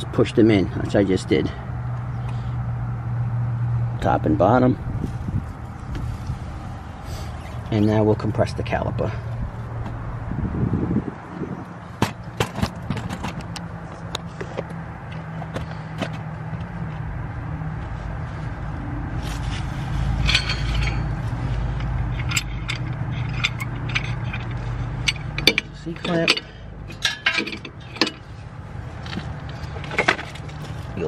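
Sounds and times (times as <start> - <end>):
steady low hum: 13.7 - 31.0
metal tools clinking and scraping: 19.2 - 31.0.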